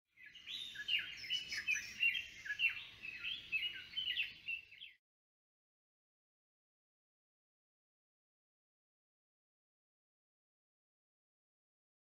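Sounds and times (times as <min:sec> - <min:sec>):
birds chirping and warbling: 0:00.1 - 0:05.0.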